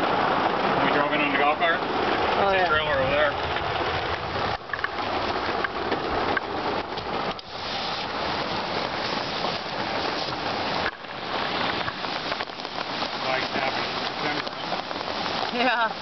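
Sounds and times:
hail hitting vehicle roof: 0.0 - 16.0.

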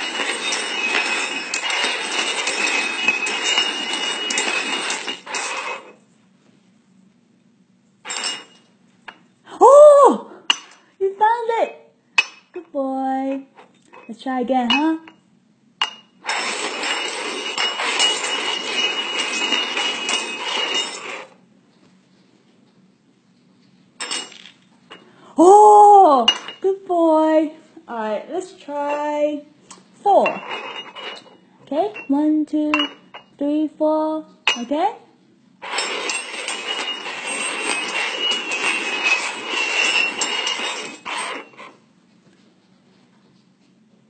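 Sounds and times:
metal cups scraping on wooden table: 0.0 - 6.0, 8.1 - 8.7, 16.2 - 21.4, 30.2 - 32.1, 35.6 - 41.8
metal cups clinking together: 32.7 - 33.3.

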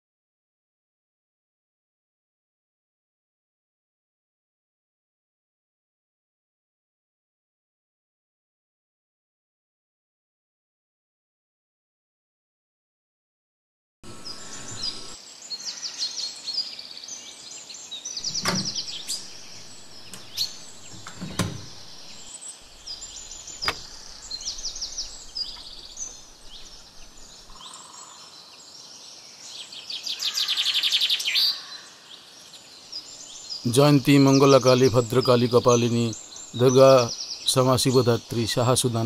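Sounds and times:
loud rapid bird trill: 14.0 - 15.9, 18.2 - 28.2
birds chirping and twittering: 14.0 - 39.0
sharp clicks or knocks: 18.2 - 27.6.

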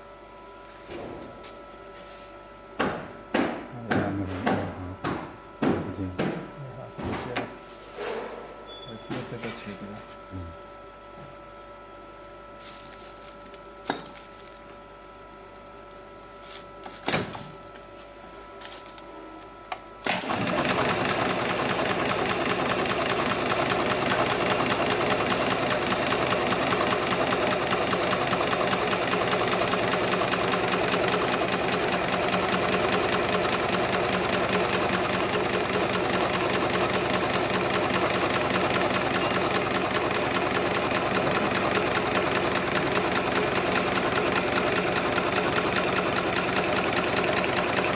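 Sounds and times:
sewing machine humming: 20.0 - 47.9
sewing machine stitching: 20.1 - 47.9.

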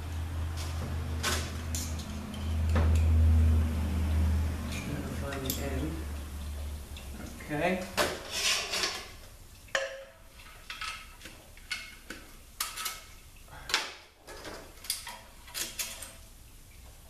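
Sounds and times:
metal rings and plates clinking: 1.7 - 3.2.

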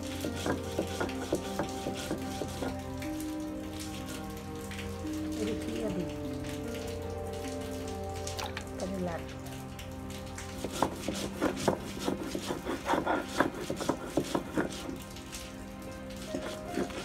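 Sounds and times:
stone roller grinding seeds: 0.0 - 2.8, 10.6 - 15.0, 16.2 - 17.0.

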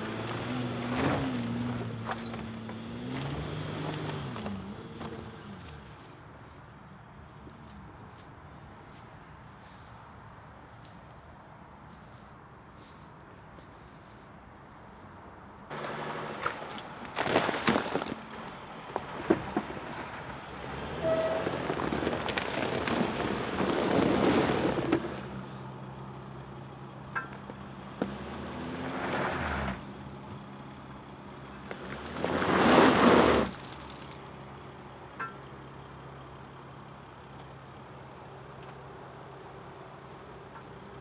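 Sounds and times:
tyres churning through mud: 0.0 - 5.9, 15.7 - 25.4, 31.5 - 34.4
van engine running: 15.7 - 28.8.

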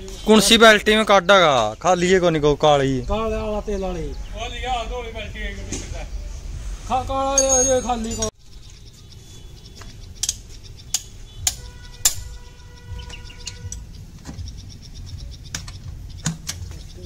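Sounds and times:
ringing metallic tone: 7.3 - 8.4
metal tool clinks and knocks: 7.4 - 8.4.

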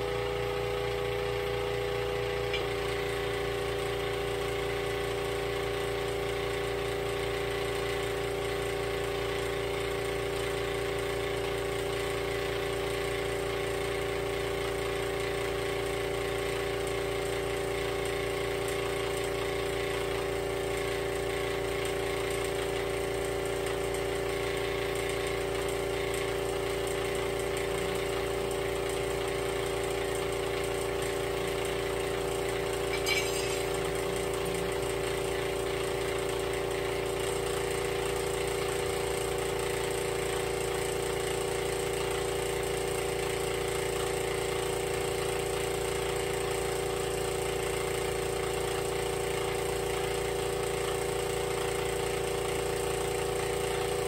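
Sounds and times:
machine humming: 32.8 - 36.3.

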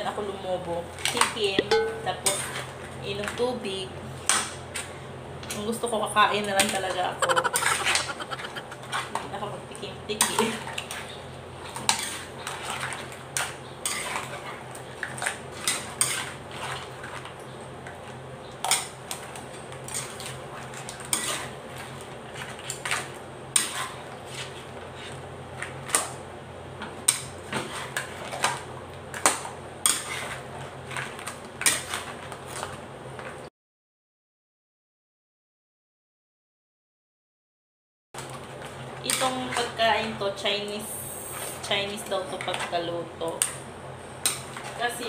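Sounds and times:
steady low hum: 7.2 - 9.0.

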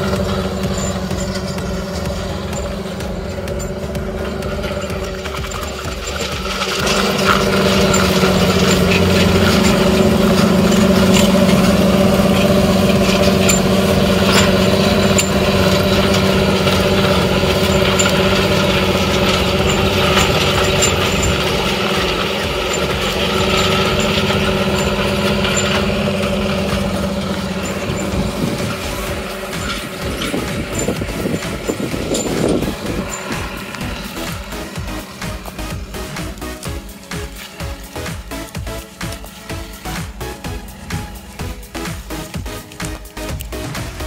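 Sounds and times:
sharp clicks: 0.0 - 44.0
tractor diesel engine at full throttle: 0.0 - 44.0.

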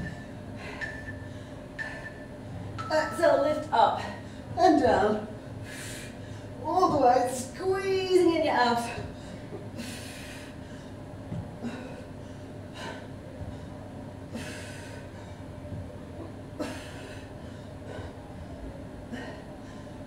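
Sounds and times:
faint steady hum: 0.0 - 20.0
woman's forceful breaths out: 11.6 - 15.4.

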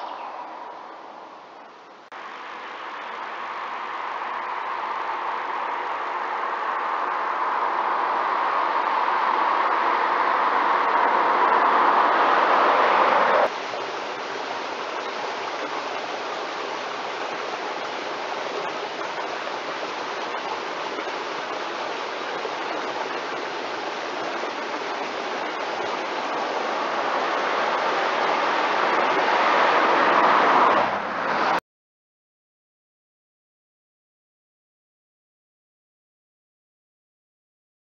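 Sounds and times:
car engine approaching: 0.0 - 13.6, 20.3 - 31.6
steady rush: 2.2 - 31.6.

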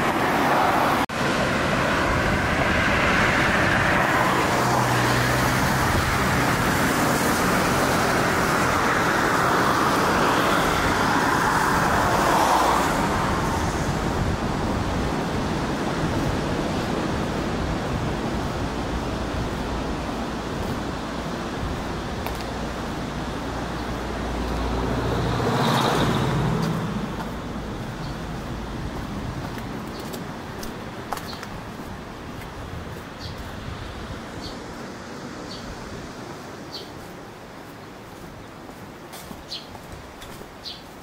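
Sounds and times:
cars passing: 0.0 - 41.0
distant traffic hum: 0.0 - 41.0.

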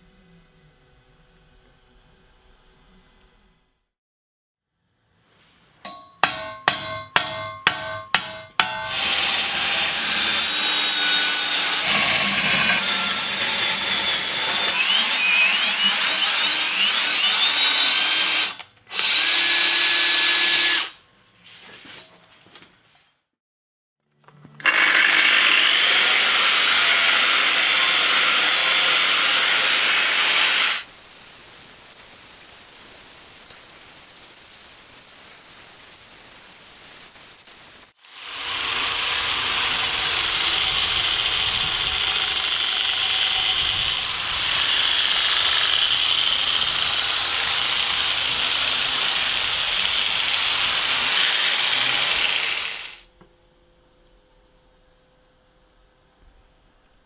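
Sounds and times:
belt sander grinding steel: 5.9 - 21.0, 24.6 - 30.9, 38.0 - 53.0.

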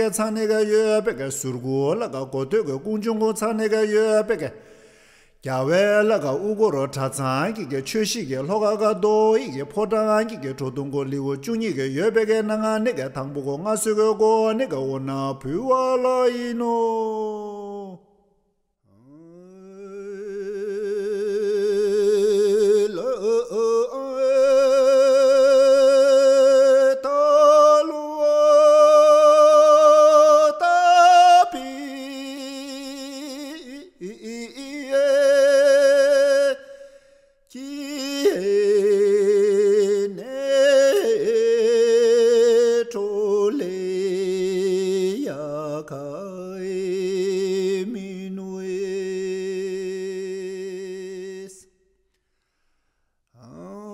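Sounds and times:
person singing unaccompanied: 19.2 - 36.6.

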